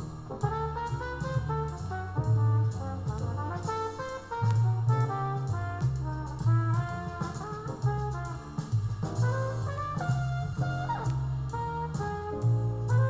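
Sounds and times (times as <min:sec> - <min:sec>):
bass line: 0:00.0 - 0:13.0
drums: 0:00.0 - 0:13.0
jazz music with horns: 0:00.0 - 0:13.0.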